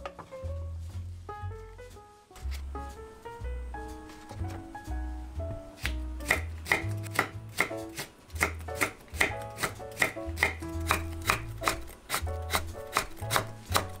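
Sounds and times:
soft background music: 0:00.0 - 0:14.0
knife chopping on cutting board: 0:05.8 - 0:14.0.

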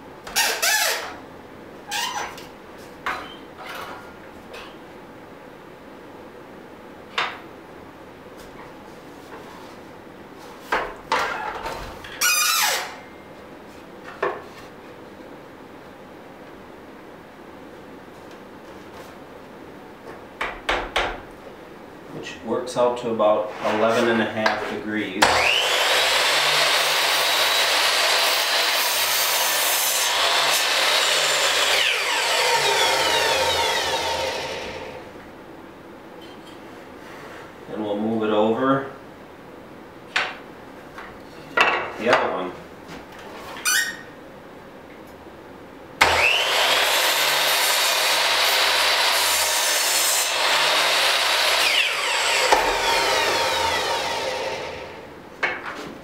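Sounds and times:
saw blade spinning down: 0:25.2 - 0:35.0, 0:46.0 - 0:55.0
miter saw cutting wood: 0:25.2 - 0:35.1, 0:46.0 - 0:55.1.

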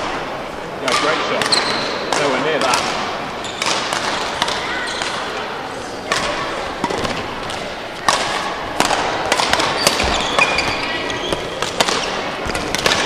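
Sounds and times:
indoor hall noise: 0:00.0 - 0:13.0
racket striking shuttlecock: 0:00.9 - 0:05.3, 0:06.0 - 0:13.0
shoe squeaks: 0:01.5 - 0:02.0, 0:03.4 - 0:03.6, 0:09.7 - 0:11.6.

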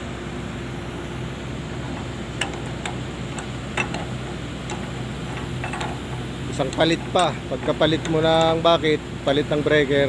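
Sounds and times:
diesel engine idling: 0:00.0 - 0:10.0
wrench clicking on metal fittings: 0:01.8 - 0:08.8.

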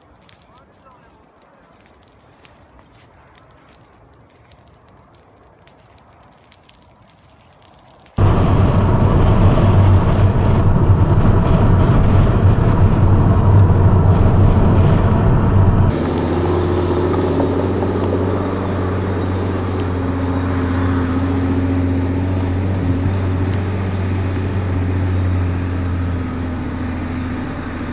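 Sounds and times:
loud road rumble: 0:08.2 - 0:27.9
truck diesel engine running: 0:08.2 - 0:27.9.

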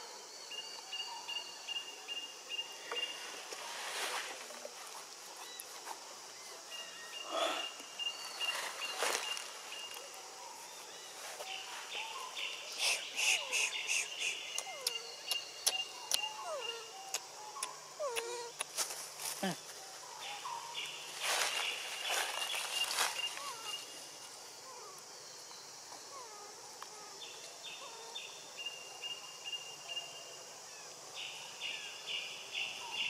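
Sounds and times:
insect buzzing: 0:11.4 - 0:19.6
short chirping calls: 0:11.6 - 0:18.7.

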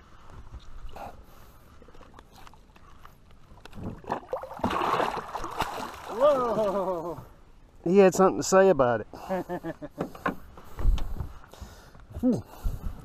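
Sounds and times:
fish splashing water: 0:03.9 - 0:06.9.

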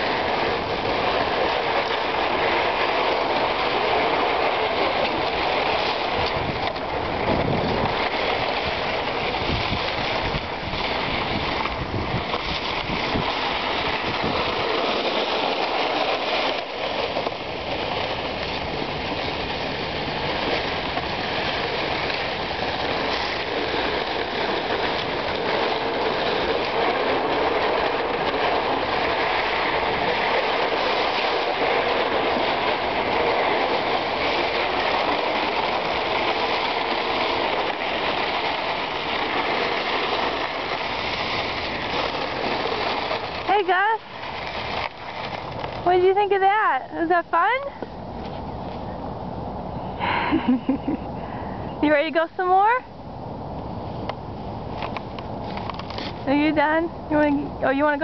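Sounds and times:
skate blades scraping ice: 0:00.0 - 0:48.9, 0:53.8 - 0:58.0
sled sliding over ice: 0:00.0 - 0:58.0
wind buffeting microphone: 0:00.0 - 0:58.0.

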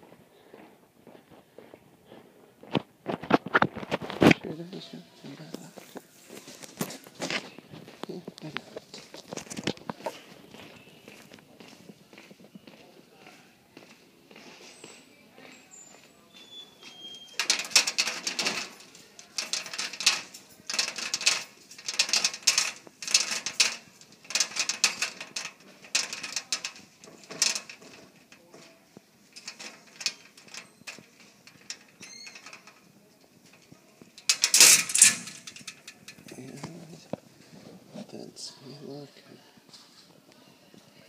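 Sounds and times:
metal locker latch clatter: 0:17.4 - 0:27.8, 0:34.2 - 0:36.5.

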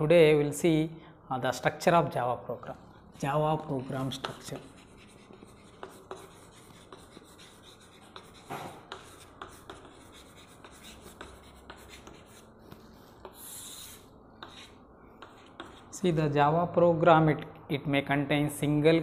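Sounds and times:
chalk scratching on chalkboard: 0:03.1 - 0:16.0.

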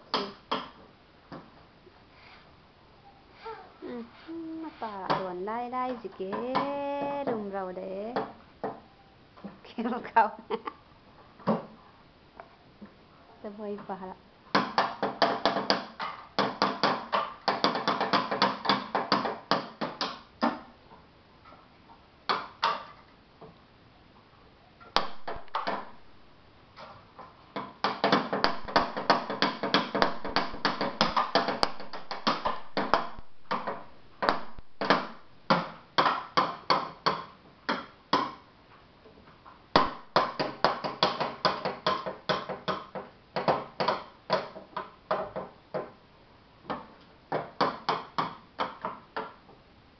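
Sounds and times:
stick drumming on wooden boxes: 0:00.0 - 0:01.5, 0:04.7 - 0:08.9, 0:13.7 - 0:20.7, 0:22.3 - 0:23.6, 0:24.9 - 0:26.2, 0:26.8 - 0:38.5, 0:39.7 - 0:46.0, 0:46.6 - 0:49.6.

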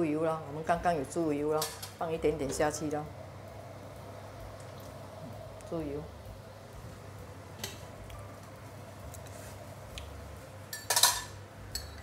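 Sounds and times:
cookware clatter: 0:10.7 - 0:12.0
spoon clinking cookware: 0:10.7 - 0:12.0.

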